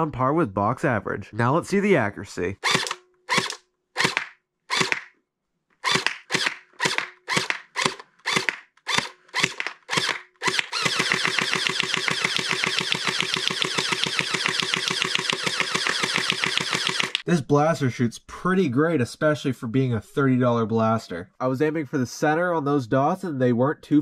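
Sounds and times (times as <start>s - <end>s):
gel blaster firing: 2.6s - 5.1s, 5.9s - 17.2s.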